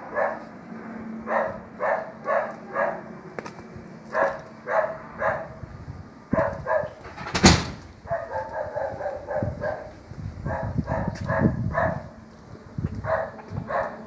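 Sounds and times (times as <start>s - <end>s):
dog barking: 0.0s - 0.5s, 1.2s - 3.1s, 4.1s - 5.6s, 6.3s - 7.0s, 8.1s - 12.1s, 13.0s - 14.0s
sharp thump: 7.0s - 7.9s.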